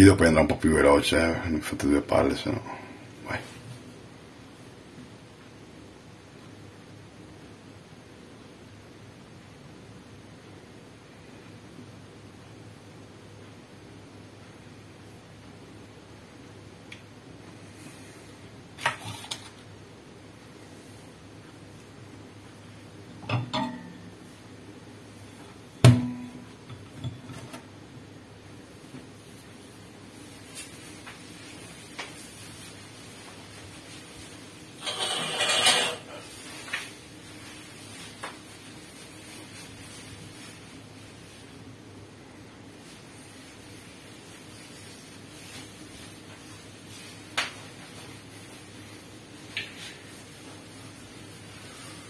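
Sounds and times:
steady low hum: 0:00.0 - 0:34.8
knocks and clinks on metal sink: 0:23.2 - 0:24.0.

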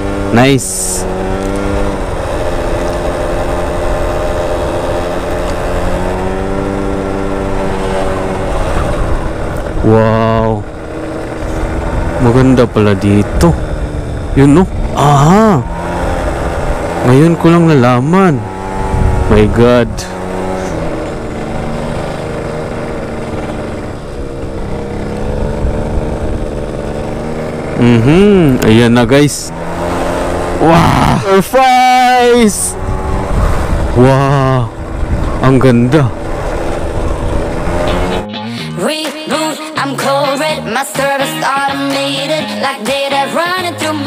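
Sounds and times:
motorcycle engine running: 0:00.0 - 0:44.0
wind rumble on microphone: 0:18.6 - 0:21.6, 0:23.6 - 0:27.2, 0:32.7 - 0:38.2.

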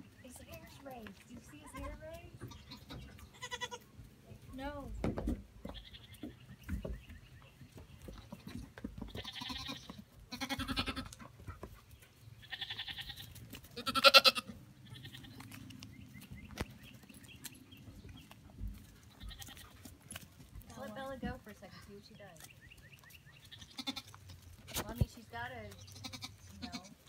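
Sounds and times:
goat kids bleating: 0:00.6 - 0:04.0, 0:05.6 - 0:06.4, 0:08.0 - 0:11.4, 0:12.4 - 0:15.7, 0:18.6 - 0:20.1, 0:23.4 - 0:24.8, 0:25.7 - 0:27.0.

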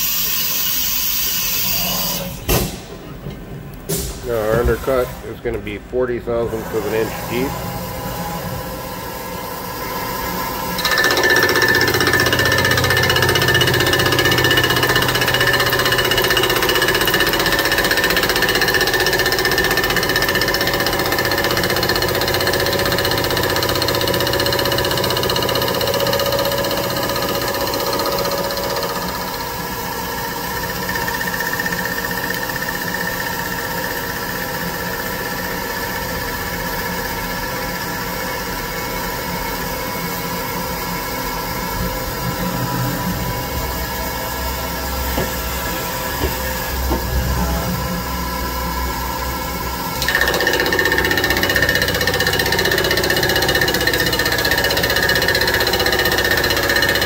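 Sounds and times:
fly cutter machining metal: 0:10.7 - 0:36.1, 0:49.5 - 0:57.0.

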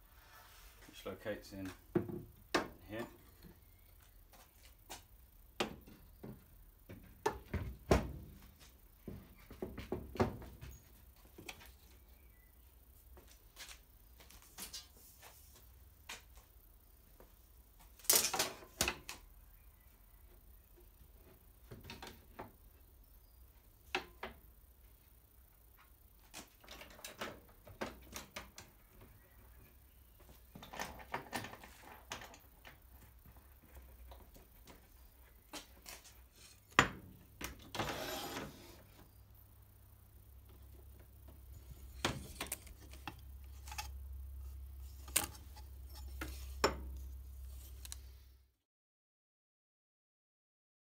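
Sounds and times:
flip stop sliding on metal track: 0:37.8 - 0:38.8.

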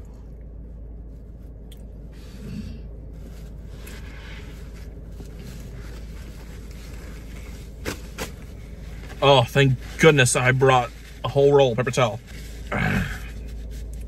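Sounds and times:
low hum: 0:00.0 - 0:14.0
paper towel rustling and scraping: 0:03.1 - 0:14.0.

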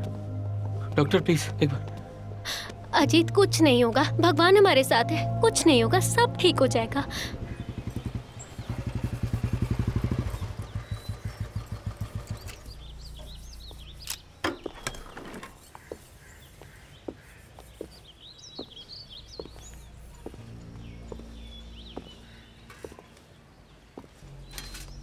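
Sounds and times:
birds chirping: 0:00.7 - 0:25.0
motorcycle engine running: 0:06.6 - 0:14.0.

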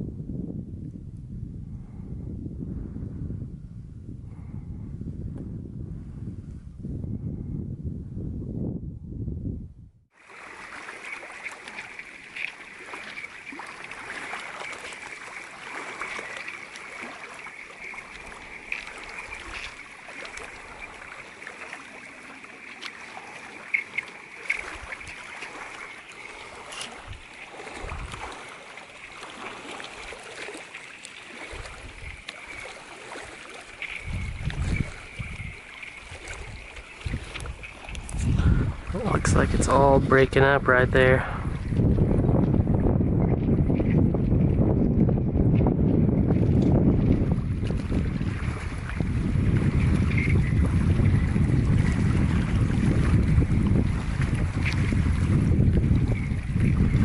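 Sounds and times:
wind gusts on microphone: 0:00.0 - 0:30.5, 0:31.3 - 0:57.0
small waves lapping: 0:10.1 - 0:42.6, 0:46.2 - 0:57.0.

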